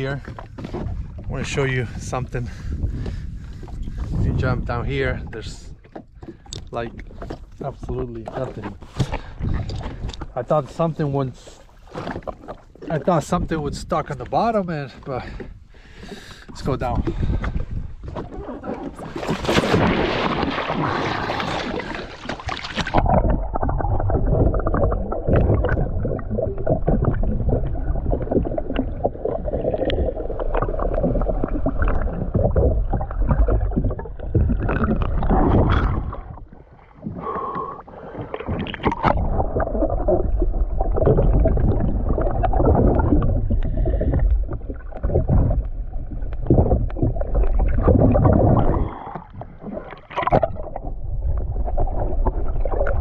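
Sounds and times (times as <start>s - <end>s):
sea water sloshing and gurgling: 0.0s - 53.0s.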